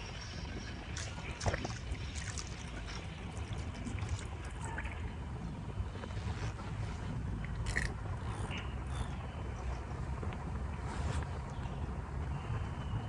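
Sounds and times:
river water flowing: 0.0 - 6.8
steady low rumble: 0.0 - 13.0.

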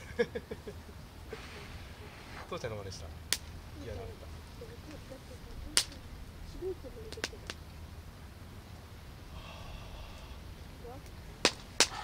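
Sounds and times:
wood fire crackling: 1.1 - 9.4
fire popping: 1.2 - 7.8, 10.6 - 12.0.

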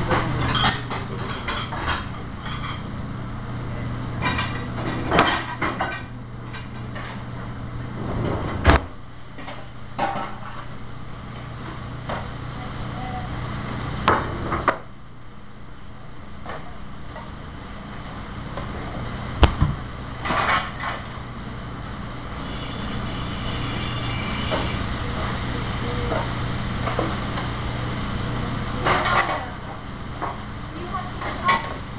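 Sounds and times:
exhaust hood hum: 17.4 - 29.0
faint sizzling: 21.2 - 29.1.

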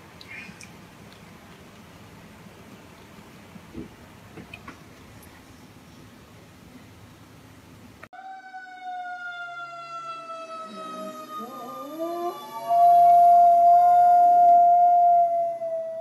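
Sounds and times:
fire truck siren wailing: 8.1 - 16.0
dog howling: 10.6 - 16.0.

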